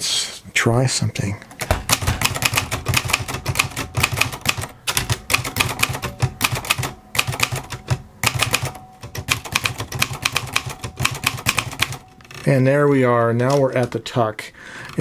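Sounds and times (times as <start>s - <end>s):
manual typewriter keystrokes: 1.6s - 12.4s.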